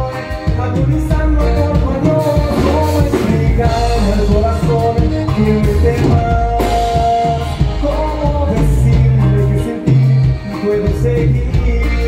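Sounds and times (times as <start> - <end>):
band playing bass and drums: 0.0 - 12.0
person singing: 0.0 - 12.0.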